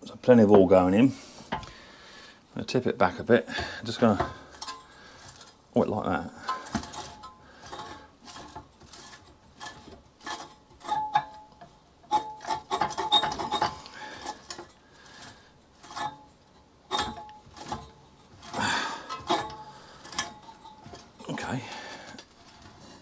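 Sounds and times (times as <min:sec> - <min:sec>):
scraping rub: 0:06.5 - 0:11.4, 0:12.1 - 0:23.0.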